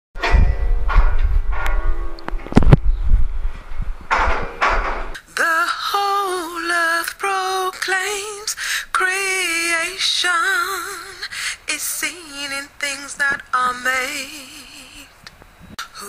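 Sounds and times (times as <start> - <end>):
woman singing with vibrato: 5.2 - 15.2, 15.8 - 16.0.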